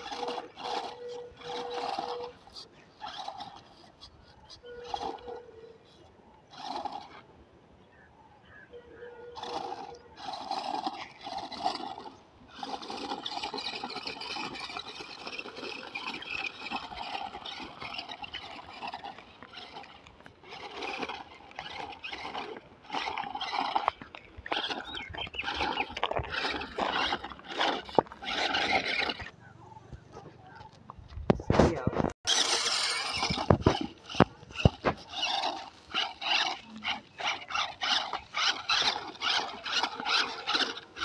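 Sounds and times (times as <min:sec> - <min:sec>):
toy car electric motor whining: 0:00.0 - 0:07.3, 0:09.2 - 0:29.4, 0:32.3 - 0:41.0.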